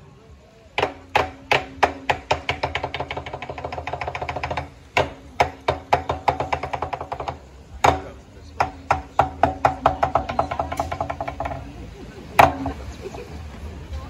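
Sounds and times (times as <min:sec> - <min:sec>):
sharp dry percussion strikes: 0:00.8 - 0:11.6.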